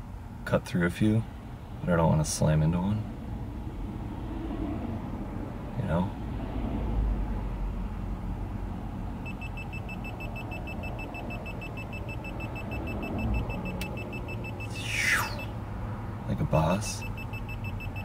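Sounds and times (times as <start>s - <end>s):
traffic rumble: 0.0s - 18.0s
rapid high-pitched warning beeps: 9.2s - 15.6s, 16.9s - 18.0s.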